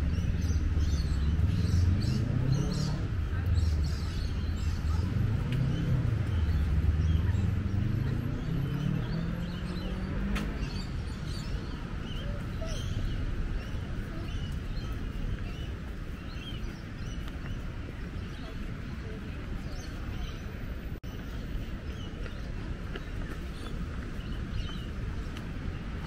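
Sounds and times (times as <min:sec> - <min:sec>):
birds chirping: 0:00.0 - 0:26.0
low traffic rumble: 0:00.0 - 0:26.0
vehicle engine accelerating past: 0:00.1 - 0:11.6.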